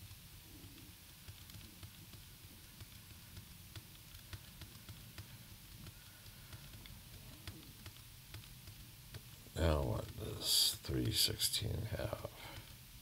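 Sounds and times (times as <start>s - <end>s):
low steady hum: 0.0s - 13.0s
computer mouse clicking: 0.7s - 9.3s.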